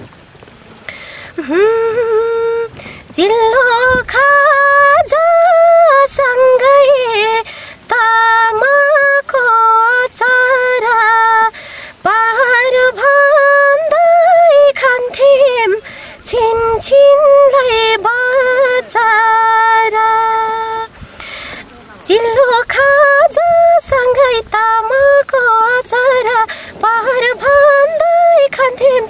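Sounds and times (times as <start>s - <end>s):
singer's short breaths: 0.9s - 1.4s, 7.5s - 7.8s, 11.6s - 12.0s, 15.8s - 16.2s, 20.9s - 21.8s, 26.5s - 26.8s
woman singing unaccompanied: 1.3s - 29.0s.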